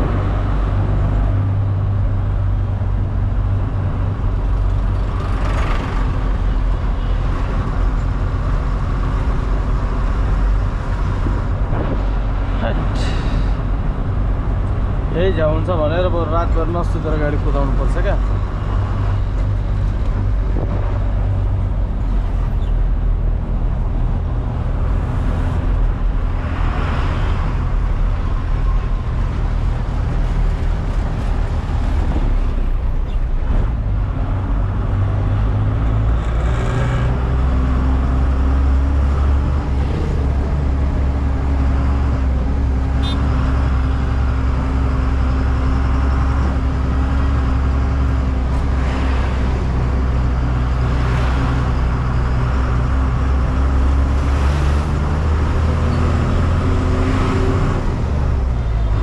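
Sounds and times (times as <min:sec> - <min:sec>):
road and traffic noise: 0:00.0 - 0:59.0.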